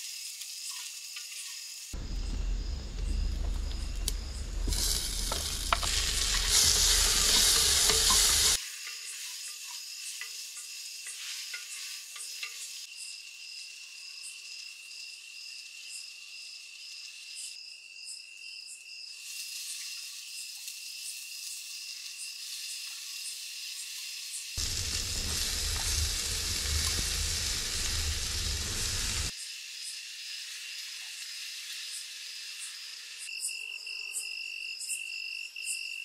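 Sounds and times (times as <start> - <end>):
food sizzling in a pot: 0.0 - 13.0, 19.1 - 33.3
stirring clicks and scrapes: 4.6 - 8.6.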